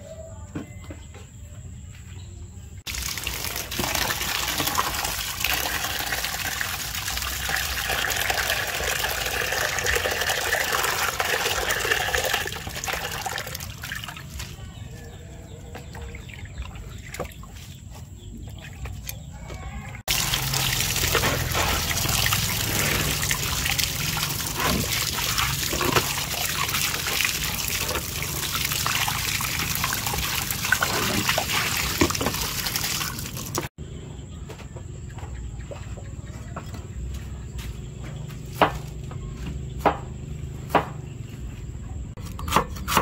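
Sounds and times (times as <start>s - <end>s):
water splashing over meat: 2.9s - 14.6s, 20.1s - 33.7s.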